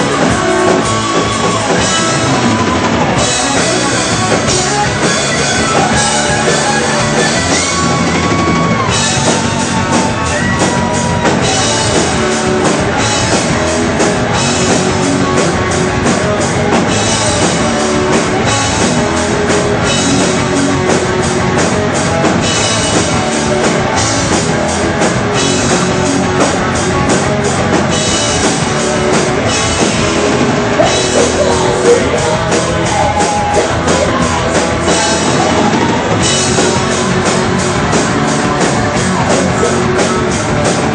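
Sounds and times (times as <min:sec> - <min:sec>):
bass: 0:00.0 - 0:40.9
distorted electric guitars: 0:00.0 - 0:40.9
fast drum kit: 0:00.0 - 0:40.9
person singing: 0:30.0 - 0:40.7.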